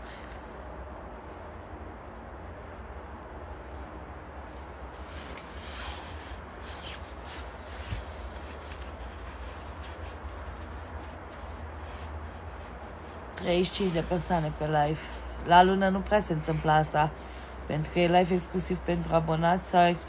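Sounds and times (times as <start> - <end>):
faint rubbing and scraping: 4.6 - 15.4.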